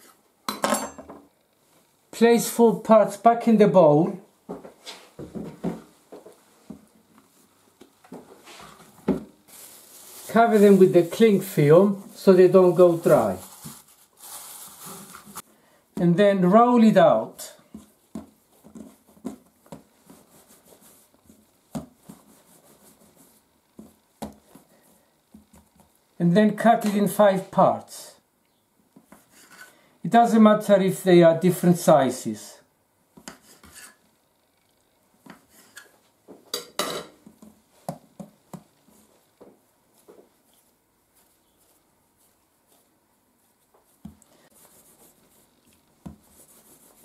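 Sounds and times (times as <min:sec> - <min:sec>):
hands rolling dough on countertop: 0:04.5 - 0:15.4, 0:17.5 - 0:26.1, 0:28.9 - 0:29.7, 0:33.1 - 0:34.0, 0:35.2 - 0:36.4, 0:37.2 - 0:47.0
soft taps of dough handling: 0:17.7 - 0:20.3, 0:37.2 - 0:44.3, 0:45.7 - 0:46.4.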